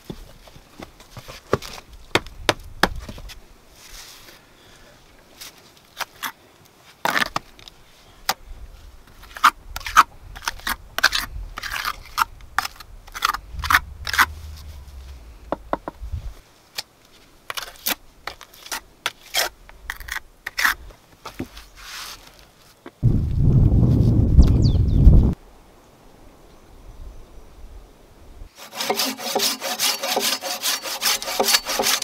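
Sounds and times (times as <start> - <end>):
mortar scraping on stone: 9.2 - 16.0, 28.6 - 32.0.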